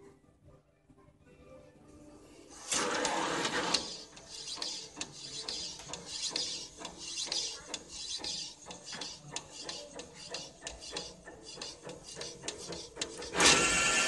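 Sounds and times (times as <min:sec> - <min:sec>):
print head carriage sweeping: 0:02.5 - 0:14.0
loud burst of noise: 0:13.4 - 0:14.0.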